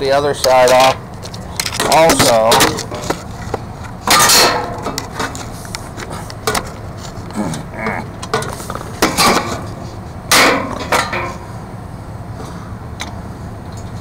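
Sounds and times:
metal clanks and knocks: 0:01.6 - 0:05.5, 0:07.5 - 0:11.5.

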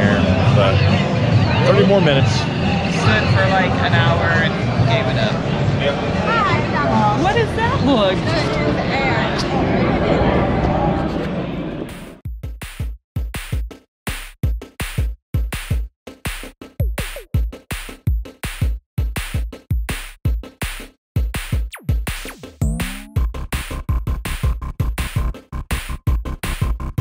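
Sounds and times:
drum machine beat: 0:12.0 - 0:27.0
falling synth glides: 0:22.6 - 0:23.2.

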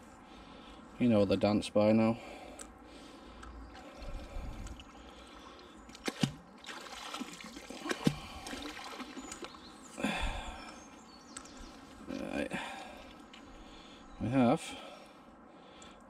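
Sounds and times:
water trickling and splashing: 0:03.6 - 0:10.7
rush of water: 0:06.0 - 0:10.4.

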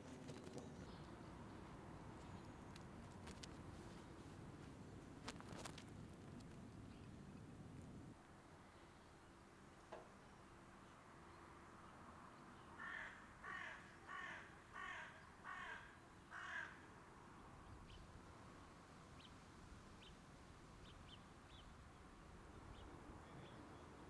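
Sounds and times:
small birds chirping faintly: 0:00.0 - 0:24.0
crow cawing: 0:12.8 - 0:16.8.

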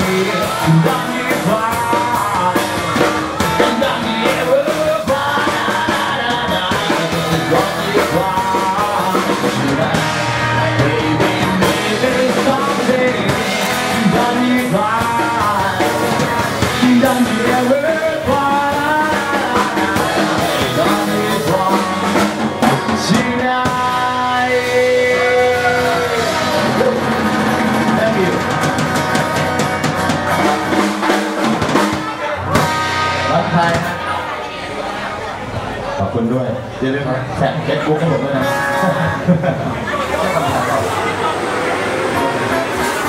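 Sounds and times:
man singing into microphone: 0:00.0 - 0:28.6, 0:37.7 - 0:39.5
drum kit: 0:00.0 - 0:34.3, 0:38.4 - 0:43.0
acoustic guitar: 0:00.0 - 0:43.0.

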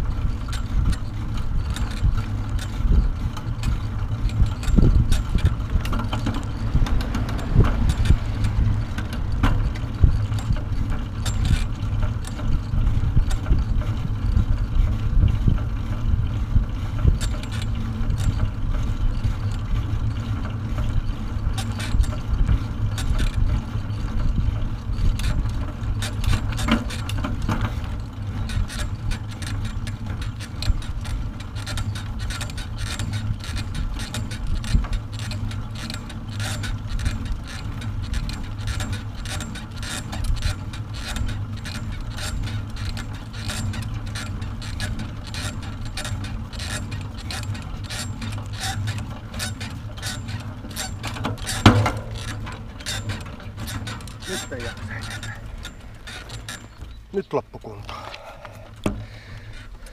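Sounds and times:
wind buffeting microphone: 0:00.0 - 0:26.6
steady rumble: 0:00.0 - 0:59.9
carrier rattling and clicking: 0:35.1 - 0:59.9.

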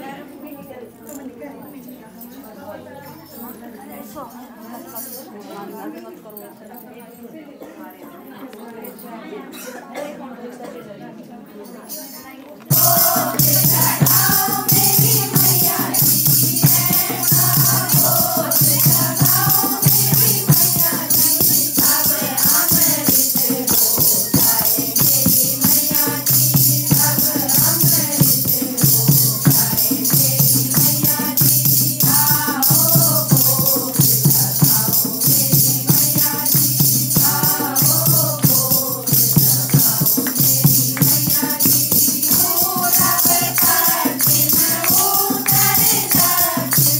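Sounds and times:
jingling percussion: 0:00.3 - 0:09.2, 0:11.6 - 0:46.9
devotional singing: 0:12.7 - 0:46.9.

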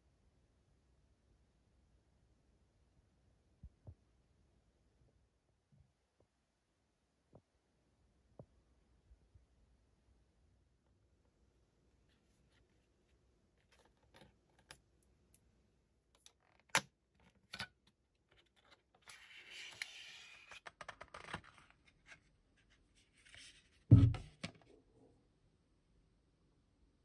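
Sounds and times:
loud dull thump: 0:23.9 - 0:24.3.

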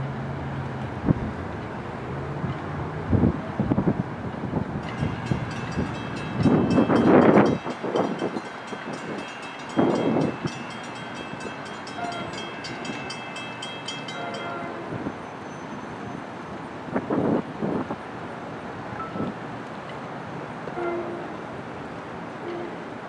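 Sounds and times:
train clattering past: 0:00.6 - 0:18.0
thin ringing tone: 0:19.0 - 0:19.3.

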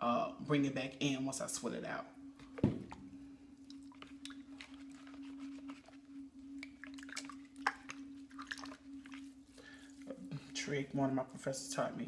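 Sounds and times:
low hum: 0:00.0 - 0:12.0
wet clay squishing: 0:03.7 - 0:10.6.

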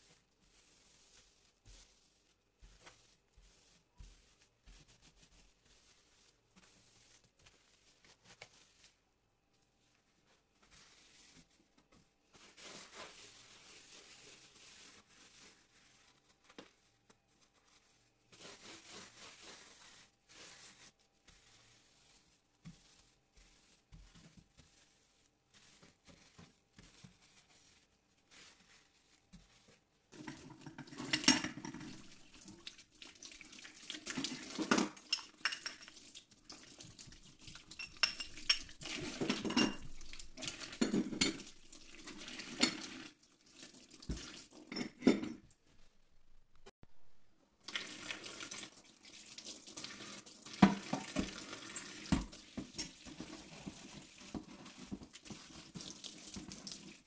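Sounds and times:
sponge scrubbing metal: 0:00.0 - 0:09.0, 0:10.3 - 0:16.5, 0:17.3 - 0:32.9.

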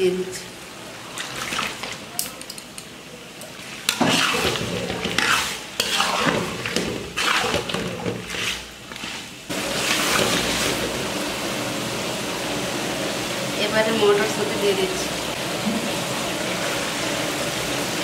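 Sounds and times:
stirrer scraping pan: 0:03.6 - 0:11.1.

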